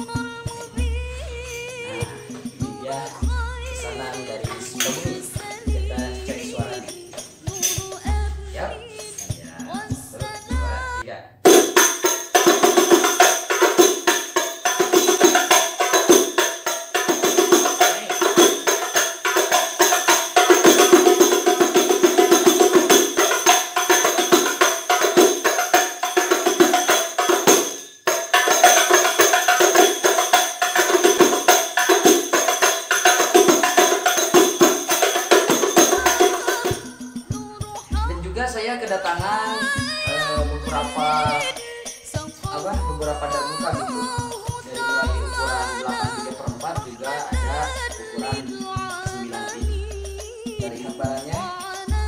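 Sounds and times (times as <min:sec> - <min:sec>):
frame drums played by hand: 0:00.0 - 0:52.0
metal jingles ringing: 0:06.2 - 0:10.6.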